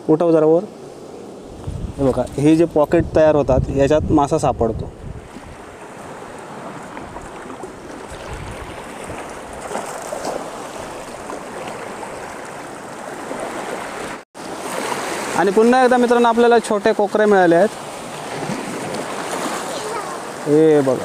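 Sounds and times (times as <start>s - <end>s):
sea surf rushing: 0.0s - 21.0s
water trickling and splashing: 5.2s - 21.0s.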